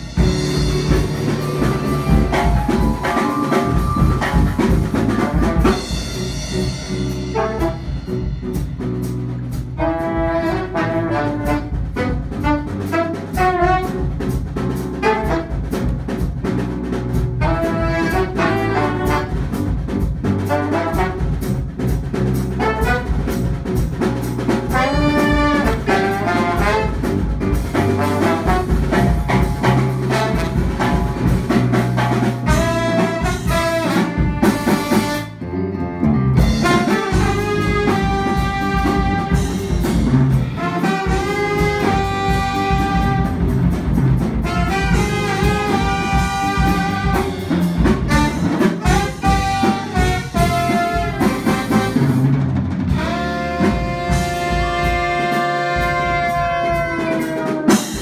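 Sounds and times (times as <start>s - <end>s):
electric guitar: 0.0s - 8.8s, 24.7s - 56.3s
drum kit: 0.0s - 58.0s
trombone and saxophones: 0.0s - 58.0s.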